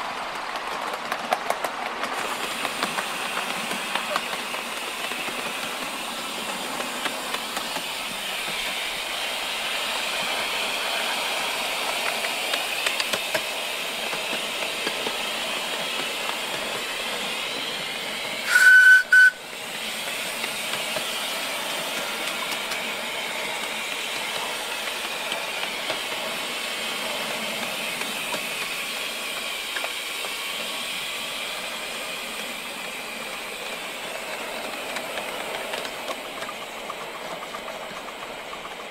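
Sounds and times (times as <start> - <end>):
miniature steam locomotive running: 0.0 - 38.9
steam hissing: 0.0 - 38.9
steam whistle blast: 18.4 - 19.5.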